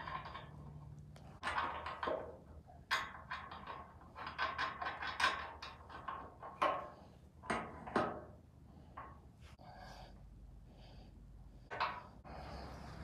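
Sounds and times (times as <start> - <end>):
metallic clicks of bolts and nuts: 0.0 - 8.2.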